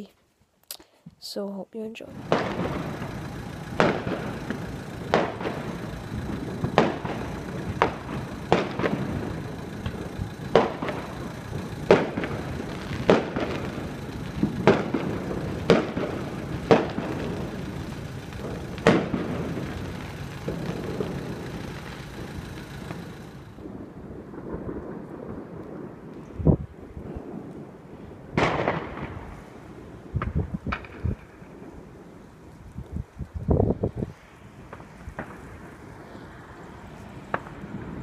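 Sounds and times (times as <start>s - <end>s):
steady background noise: 0.0s - 25.8s
firework bangs: 2.1s - 26.2s, 28.4s - 32.0s, 34.6s - 38.0s.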